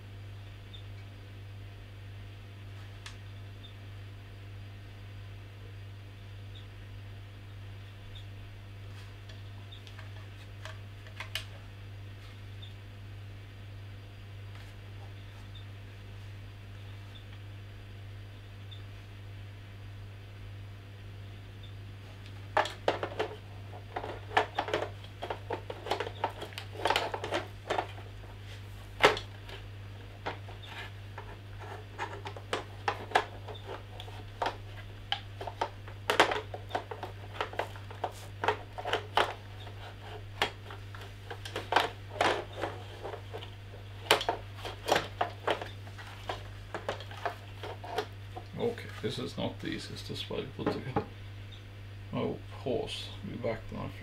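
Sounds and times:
plastic parts clicking and knocking: 22.5 - 28.1, 29.0 - 48.6.

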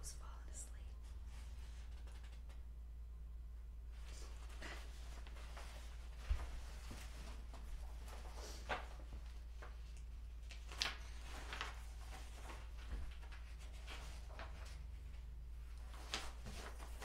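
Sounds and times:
steady low hum: 0.0 - 17.0
paper rustling: 1.3 - 2.6, 4.0 - 17.0.

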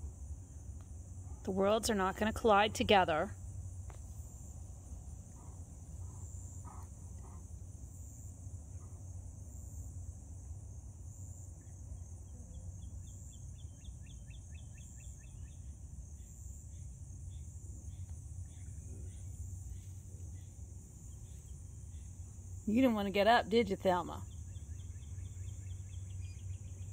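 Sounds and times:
insect chorus: 0.0 - 26.9
bird chirping: 11.6 - 15.7.

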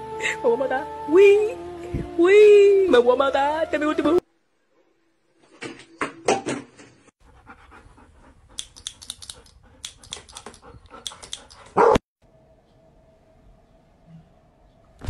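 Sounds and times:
dog panting: 7.2 - 11.9.

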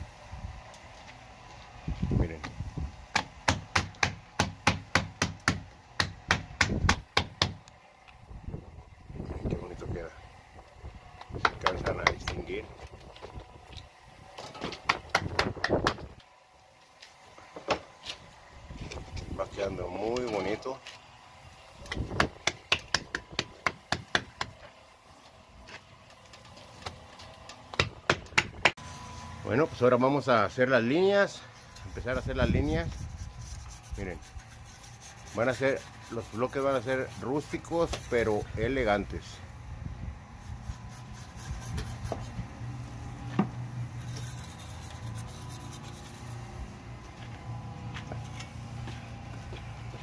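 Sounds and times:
hand slapping texture stamp on render: 2.4 - 7.6, 21.9 - 24.6
hand tool scraping cement: 31.3 - 39.0, 40.4 - 42.4, 43.9 - 46.4.

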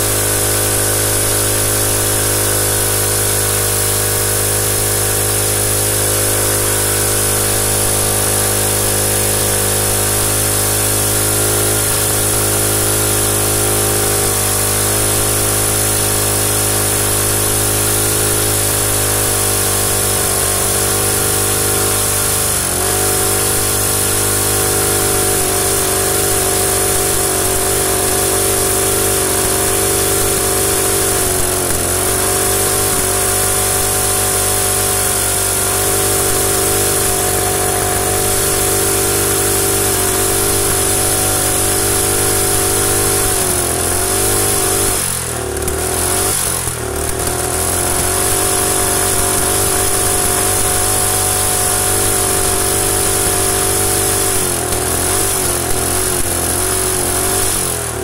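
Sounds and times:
small engine running: 0.0 - 58.0.

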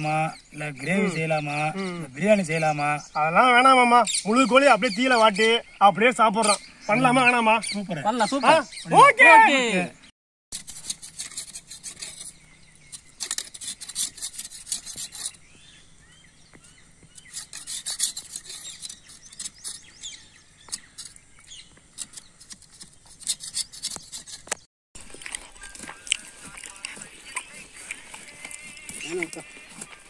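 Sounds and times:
machete scraping wooden stick: 10.5 - 15.6, 17.0 - 30.0.

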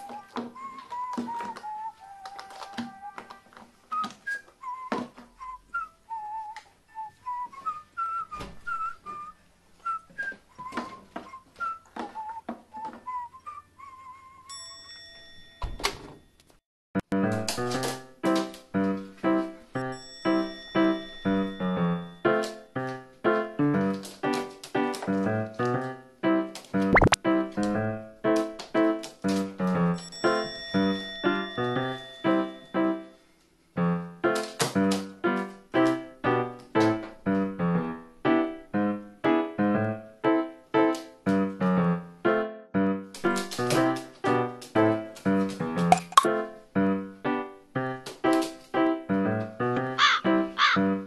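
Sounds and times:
keyboard notes and chords: 26.9 - 27.2, 40.8 - 47.9.

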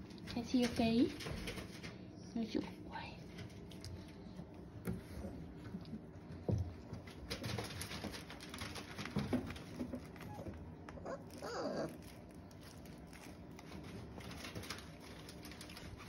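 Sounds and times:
puppy whimper: 10.1 - 12.2.

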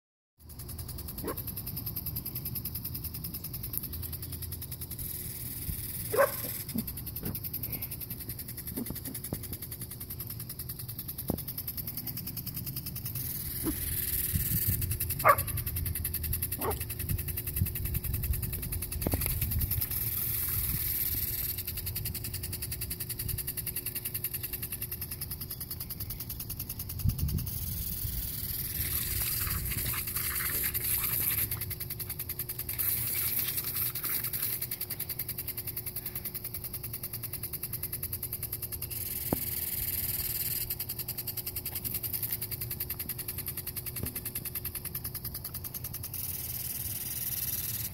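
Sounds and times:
sprinkler water jet hissing: 0.4 - 47.9
dog yipping: 6.1 - 6.8, 15.2 - 15.6.

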